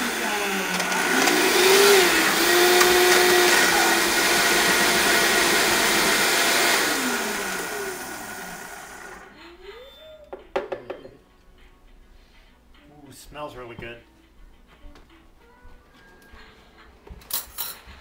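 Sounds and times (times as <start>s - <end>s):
blender running: 0.0s - 9.4s.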